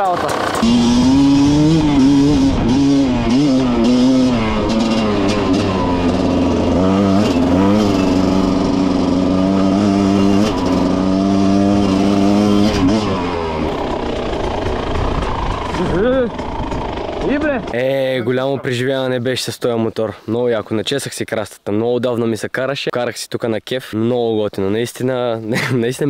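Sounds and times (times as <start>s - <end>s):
two-stroke motorcycle engine: 0.0s - 18.1s.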